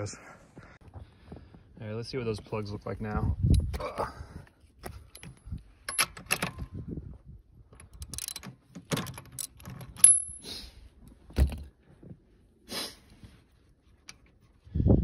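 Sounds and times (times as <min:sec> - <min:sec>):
metal tools clinking: 0:04.9 - 0:06.6, 0:07.8 - 0:10.5
socket ratchet clicking: 0:07.8 - 0:10.4.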